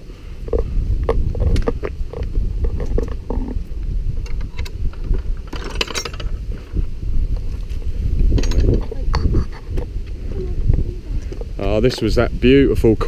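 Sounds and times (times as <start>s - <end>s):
wind rumble on microphone: 0.0s - 13.0s
metal gate latch rattling and clicking: 4.3s - 6.4s, 8.4s - 8.9s.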